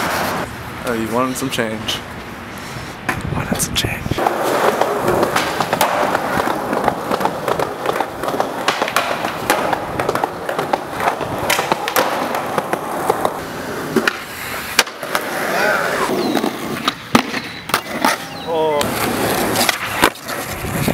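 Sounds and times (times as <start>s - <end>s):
skateboard wheels rolling on concrete: 0.0s - 3.3s, 4.1s - 20.9s
skateboard clacking on ground: 4.2s - 20.9s.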